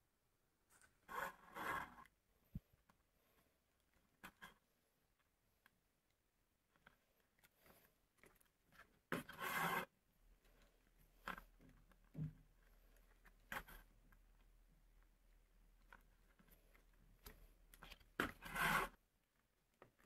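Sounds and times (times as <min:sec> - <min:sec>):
thread rasping through leather: 0:06.7 - 0:14.5, 0:15.8 - 0:20.0.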